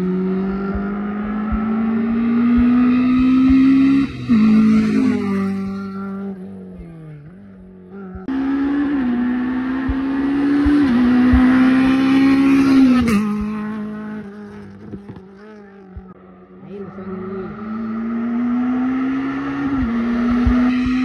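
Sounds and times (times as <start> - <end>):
rally car engines at full throttle: 0.0 - 21.0.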